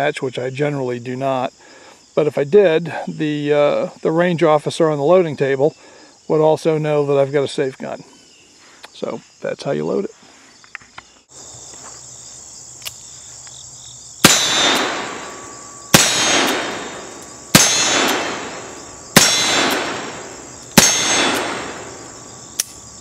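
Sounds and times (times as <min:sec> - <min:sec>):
insects buzzing: 0:00.0 - 0:23.0
revolver shots echoing: 0:14.2 - 0:22.4.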